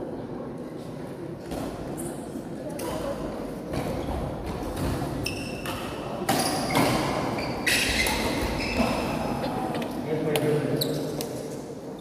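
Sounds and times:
shoes squeaking on court: 4.7s - 9.3s, 10.8s - 11.3s.

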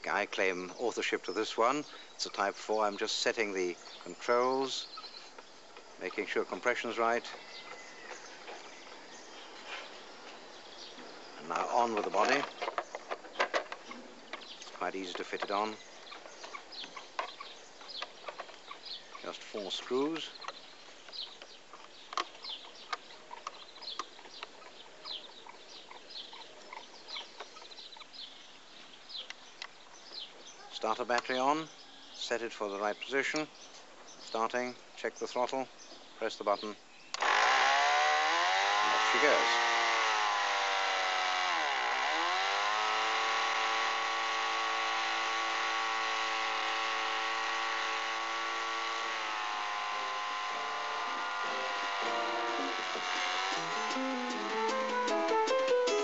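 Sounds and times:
birds chirping: 0.0s - 56.0s
small model diesel engine running: 37.2s - 55.0s.

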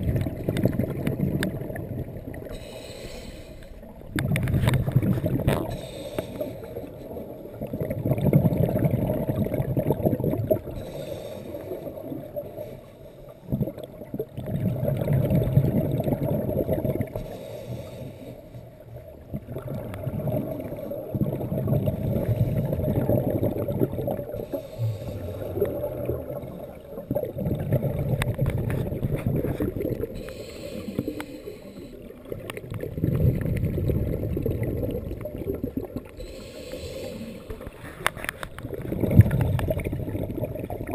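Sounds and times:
underwater bubbles rushing: 0.0s - 40.9s
hissing regulator inhales: 2.5s - 3.8s, 5.7s - 6.8s, 10.8s - 11.9s, 17.2s - 18.6s, 24.4s - 25.7s, 30.2s - 32.1s, 36.2s - 38.2s.

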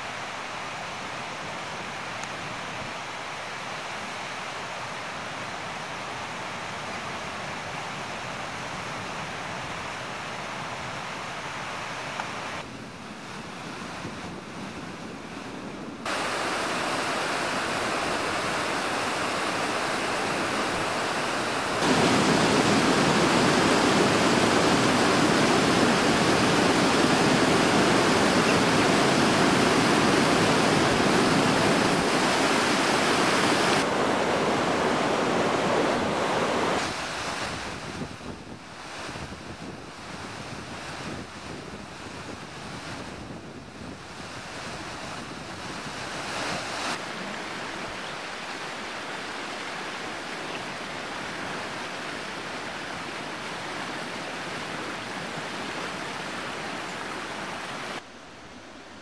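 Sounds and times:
water rushing over rocks: 16.0s - 39.4s.

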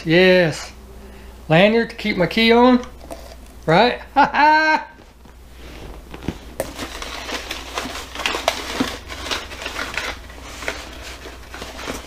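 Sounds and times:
cardboard box rustling: 5.0s - 12.0s
packing paper crinkling: 5.0s - 12.0s.

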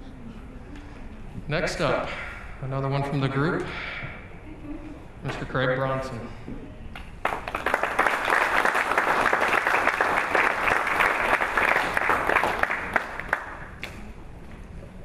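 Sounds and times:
audience applauding: 7.2s - 14.0s.

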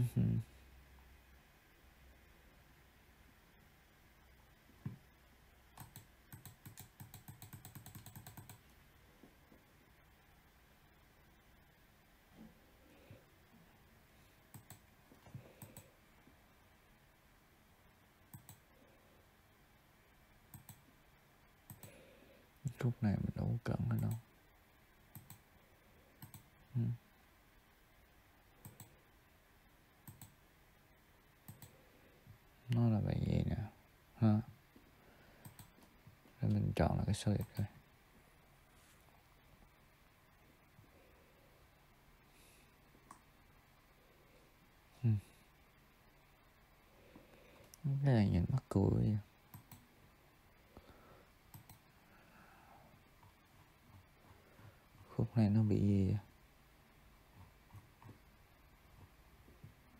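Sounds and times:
computer clicks: 5.7s - 8.7s, 14.5s - 15.9s, 18.3s - 18.7s, 20.5s - 20.8s, 21.6s - 22.0s, 23.9s - 24.3s, 25.1s - 25.4s, 26.2s - 26.5s, 28.6s - 29.0s, 30.0s - 30.4s, 31.4s - 31.8s, 35.4s - 35.9s, 37.3s - 37.7s, 49.5s - 49.9s, 51.5s - 51.9s.

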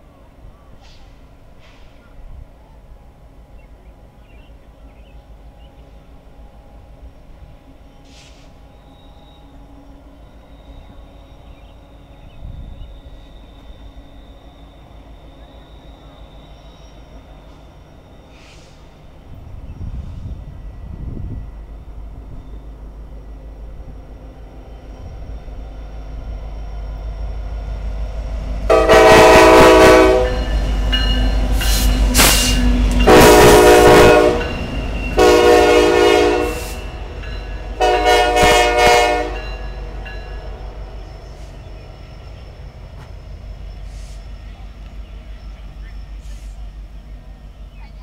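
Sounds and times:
diesel locomotive engine rumble: 0.0s - 48.0s
train air horn blasts: 28.7s - 30.6s, 31.5s - 37.1s, 37.7s - 40.8s.

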